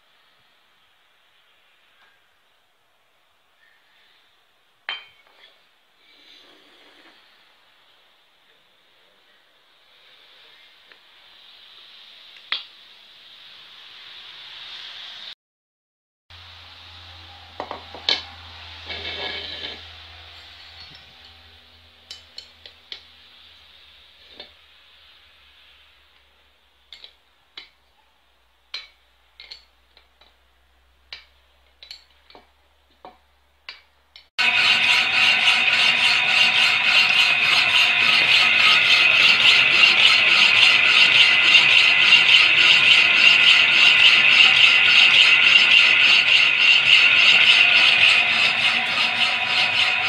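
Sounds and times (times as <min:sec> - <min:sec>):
power hacksaw sawing steel: 0:17.6 - 0:21.5, 0:34.4 - 0:50.0.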